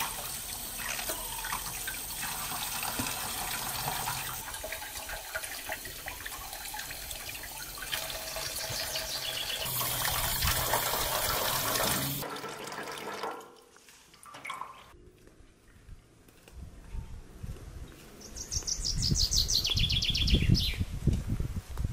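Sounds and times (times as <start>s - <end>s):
water running and splashing: 0.0s - 14.9s.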